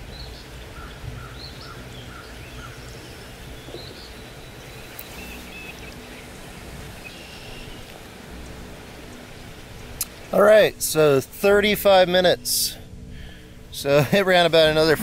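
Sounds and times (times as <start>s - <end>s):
bird chirps: 7.0s - 7.9s.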